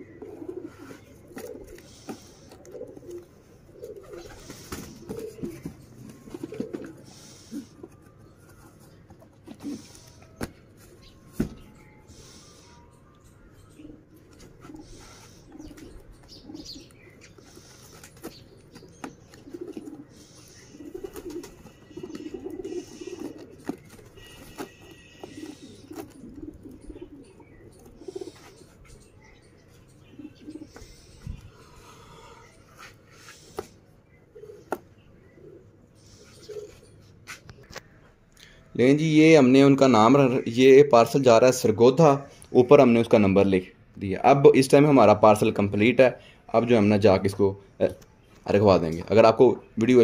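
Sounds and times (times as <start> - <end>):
pigeons cooing: 0.0 - 41.2.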